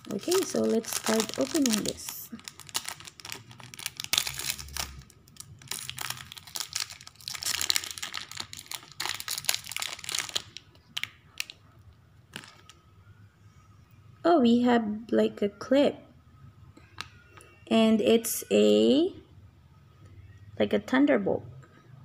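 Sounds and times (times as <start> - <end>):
plastic wrapper tearing and crinkling: 0.0 - 11.6, 12.3 - 12.8.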